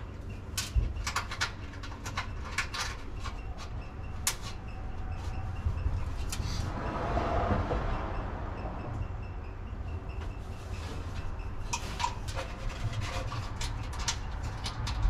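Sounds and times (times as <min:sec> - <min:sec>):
metallic clicks and knocks: 0:00.0 - 0:06.4, 0:11.1 - 0:15.0.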